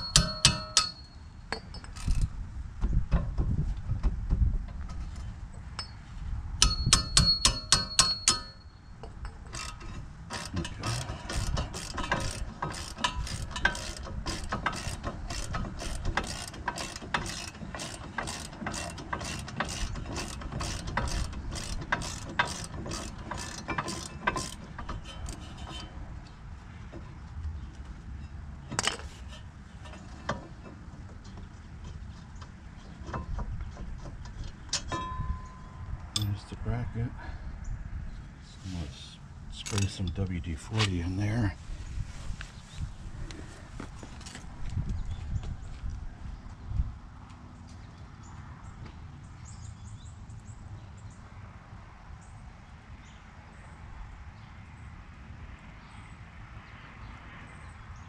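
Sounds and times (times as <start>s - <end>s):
ratchet wrench clicking: 9.5s - 25.8s.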